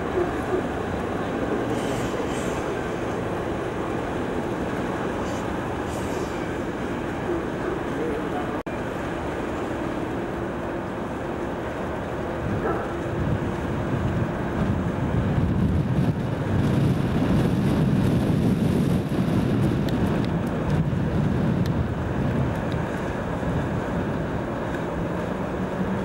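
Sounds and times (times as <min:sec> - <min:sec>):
diesel locomotive engine rumbling: 0:00.0 - 0:26.0
wind noise on microphone: 0:12.4 - 0:26.0.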